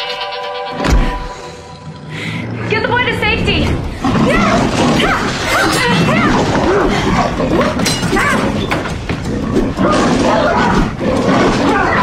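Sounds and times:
yelling and grunting cries: 0:03.9 - 0:08.7, 0:09.4 - 0:12.0.

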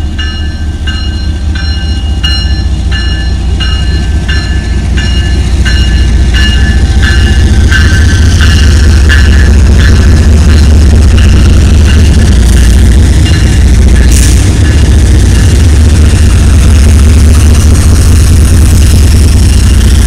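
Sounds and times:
diesel locomotive engine rumble: 0:00.0 - 0:20.0
bell ringing: 0:00.2 - 0:12.3.

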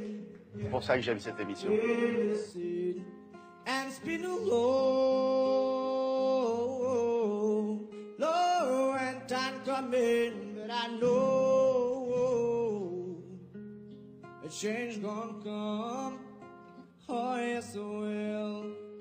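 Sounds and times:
man singing: 0:00.0 - 0:13.6, 0:14.4 - 0:16.4, 0:17.0 - 0:19.0
acoustic guitar: 0:00.0 - 0:19.0.

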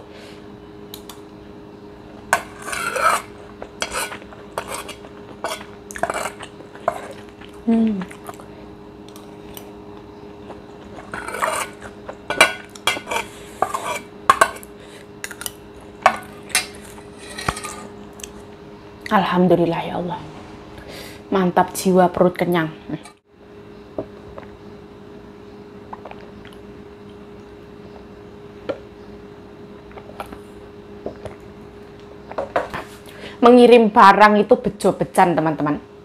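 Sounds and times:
spoon scraping ceramic bowl: 0:02.4 - 0:07.2, 0:11.0 - 0:14.7, 0:16.2 - 0:18.0.

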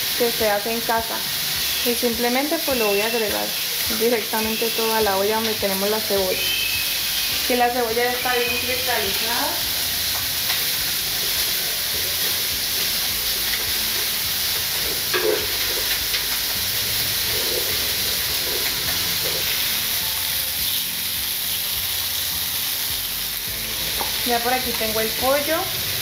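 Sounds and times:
vegetables sizzling in a pot: 0:00.0 - 0:26.0
spatula scraping: 0:17.0 - 0:19.8.

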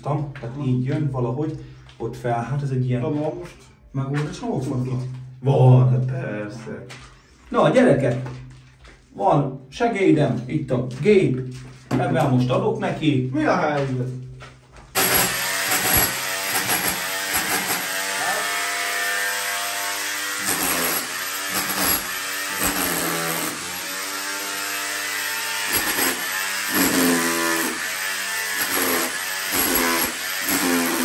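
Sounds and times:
rotary hammer chipping plaster: 0:15.0 - 0:31.0.

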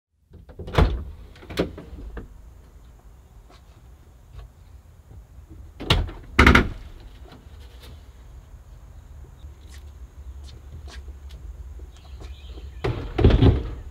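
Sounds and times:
door rattles: 0:00.3 - 0:02.4, 0:05.8 - 0:07.2, 0:12.8 - 0:13.9
van doors clunking open: 0:00.3 - 0:02.4, 0:05.6 - 0:07.4, 0:12.6 - 0:13.9.

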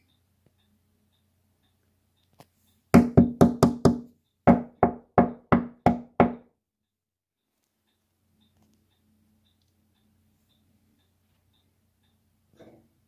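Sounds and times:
knocking on a hard surface: 0:03.0 - 0:06.5.

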